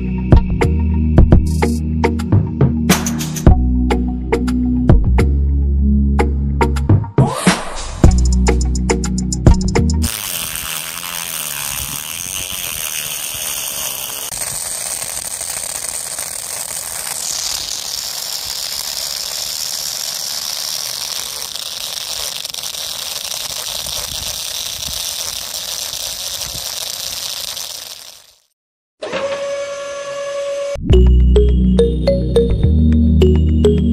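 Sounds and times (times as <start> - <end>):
small motor whirring: 9.6 - 30.8.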